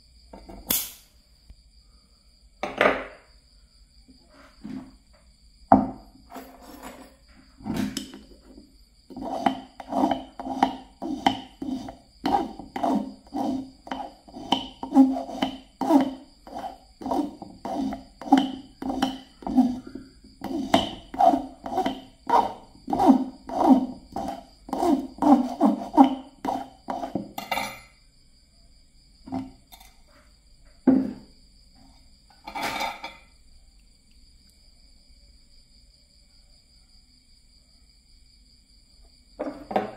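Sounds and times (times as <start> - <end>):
metal file rasping on wire: 9.1 - 27.2.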